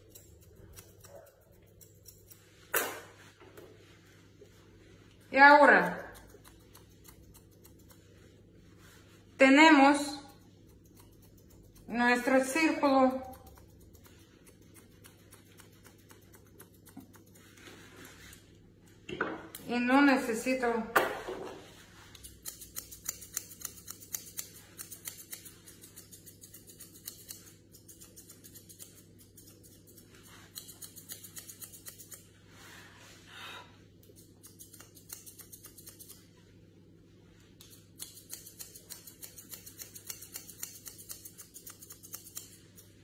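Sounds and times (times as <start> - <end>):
scissors snipping hair: 0.0 - 3.3, 5.4 - 8.4, 9.8 - 18.5, 22.0 - 32.3, 34.0 - 36.4, 37.6 - 43.0.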